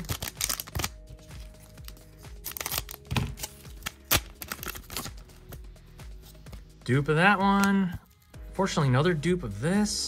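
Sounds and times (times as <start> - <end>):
wrapper ripping: 0.0 - 5.2
wrapper crinkling: 0.0 - 5.3.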